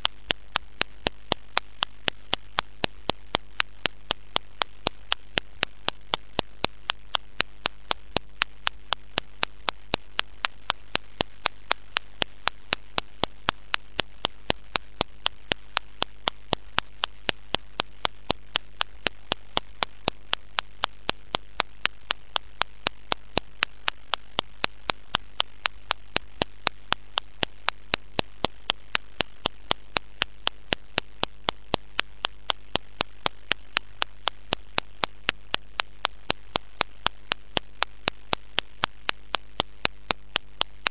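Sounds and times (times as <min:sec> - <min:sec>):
electrical hum: 0:00.0 - 0:40.9
sharp clicks: 0:00.0 - 0:40.9.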